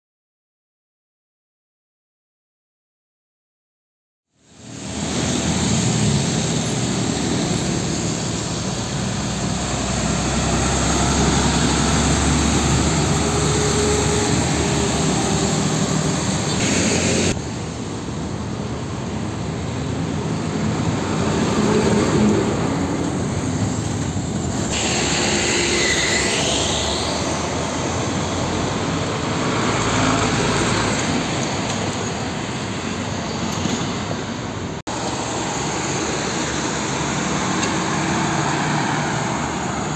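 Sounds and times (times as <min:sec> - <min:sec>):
trucks driving past: 0:04.4 - 0:39.9
tyres rolling on wet road: 0:04.6 - 0:25.4, 0:26.5 - 0:39.9
motorcycles and cars passing: 0:04.8 - 0:17.4, 0:18.9 - 0:32.3, 0:34.9 - 0:39.9.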